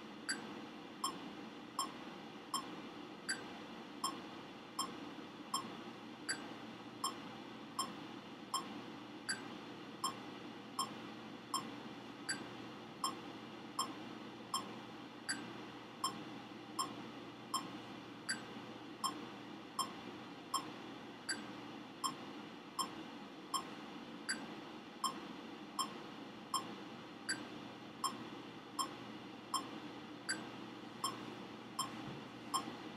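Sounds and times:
electronic metronome ticking: 0:15.3 - 0:16.2, 0:31.8 - 0:32.7.

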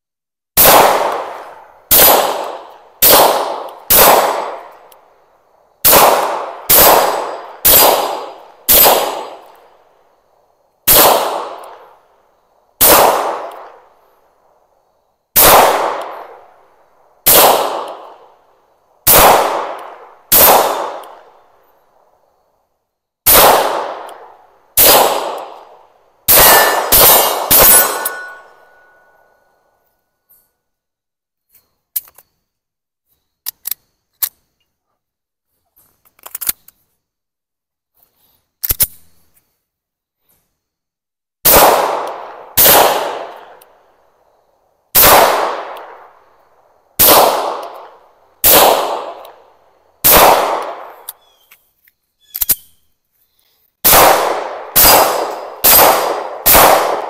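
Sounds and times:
pistol shots: 0:00.6 - 0:04.9, 0:05.8 - 0:09.6, 0:10.9 - 0:12.0, 0:12.8 - 0:13.9, 0:15.4 - 0:16.5, 0:17.2 - 0:18.4, 0:19.0 - 0:21.4, 0:23.2 - 0:29.2, 0:41.4 - 0:43.6, 0:44.9 - 0:46.3, 0:47.0 - 0:51.2, 0:53.8 - 0:57.0.

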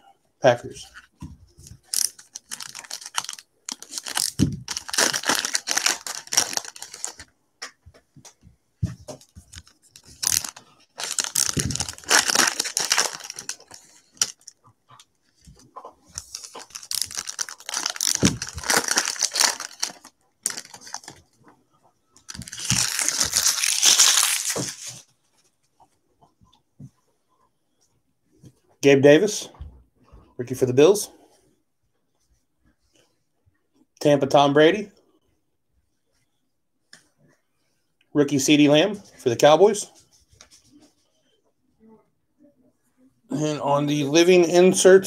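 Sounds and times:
foil wrappers tearing and crinkling: 0:01.8 - 0:07.2, 0:10.0 - 0:14.5, 0:16.2 - 0:21.2, 0:22.3 - 0:25.0.

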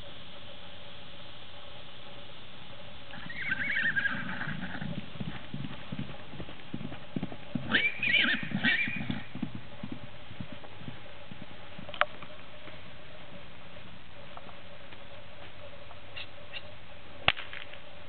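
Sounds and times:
hoofbeats on grass: 0:01.8 - 0:18.0
horse whinnying: 0:03.1 - 0:04.9, 0:07.7 - 0:09.3.

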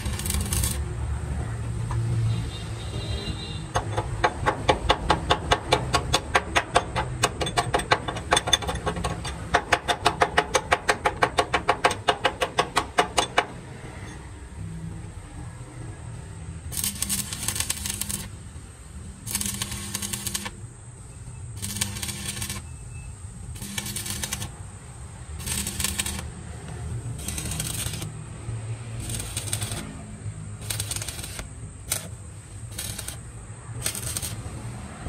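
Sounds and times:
welding arc crackling: 0:00.0 - 0:01.2, 0:16.7 - 0:20.7, 0:21.5 - 0:22.7, 0:23.4 - 0:34.8.

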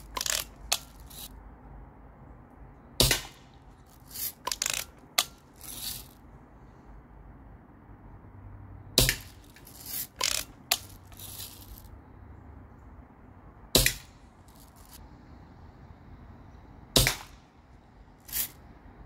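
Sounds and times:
bb gun shots snapping: 0:03.0 - 0:03.4, 0:13.8 - 0:14.1, 0:17.0 - 0:17.4
lever cocking clicks: 0:04.4 - 0:05.4, 0:09.0 - 0:10.9.

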